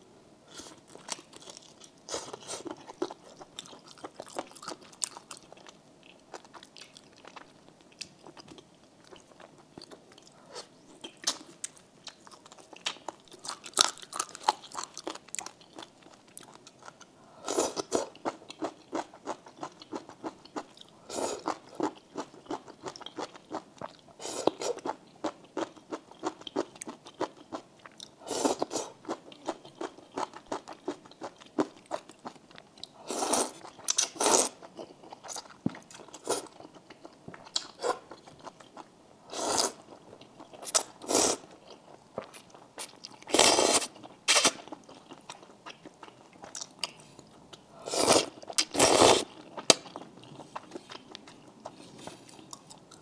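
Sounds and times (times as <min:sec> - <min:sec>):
wet chewing and crunching: 0:00.6 - 0:10.4, 0:11.0 - 0:17.1.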